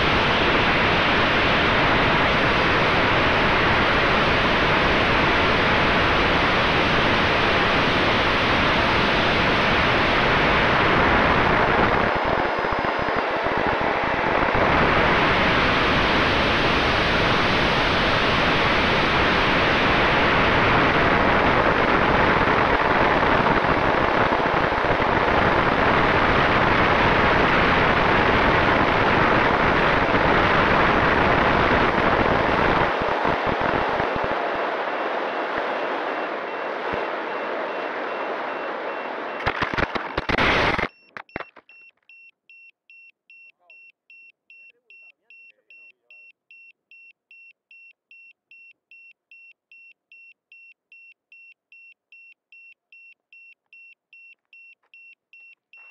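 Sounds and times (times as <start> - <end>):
high beeps: 36.1 - 40.2, 40.9 - 55.9.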